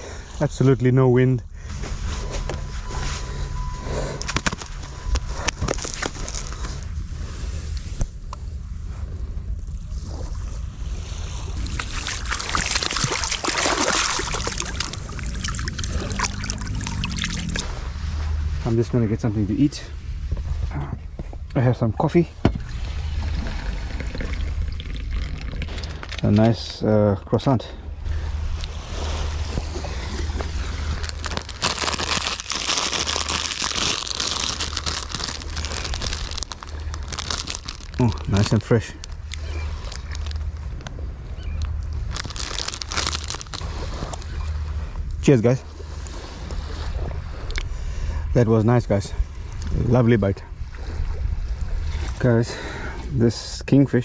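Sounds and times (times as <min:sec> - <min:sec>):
steady low rumble: 0:00.0 - 0:54.0
plastic wrapper crinkling: 0:04.2 - 0:06.6, 0:30.8 - 0:40.4, 0:42.0 - 0:44.2
seawater splashing and sloshing: 0:09.9 - 0:18.8, 0:22.2 - 0:26.4, 0:27.8 - 0:48.1.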